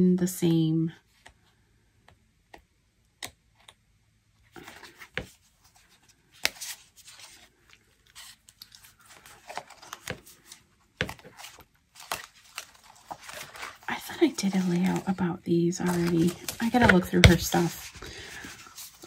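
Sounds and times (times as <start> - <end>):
paper rustling by hand: 4.6 - 19.0.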